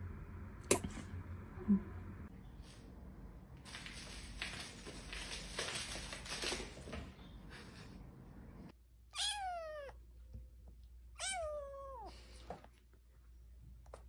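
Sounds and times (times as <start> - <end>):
kitten meowing: 9.1 - 10.0, 11.2 - 12.1.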